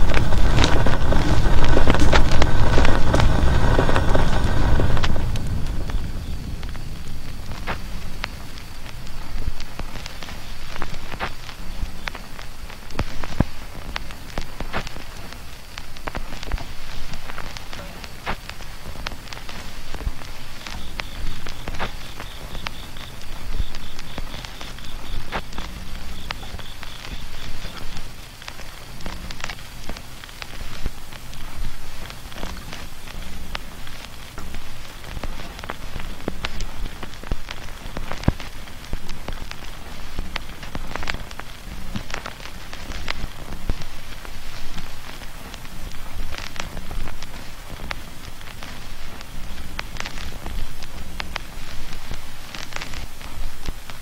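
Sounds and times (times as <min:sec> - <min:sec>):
low rumble: 0:00.0 - 0:12.8
rain drips and taps: 0:00.0 - 0:54.0
sharp clicks and pops: 0:00.0 - 0:54.0
steady hiss: 0:00.0 - 0:54.0.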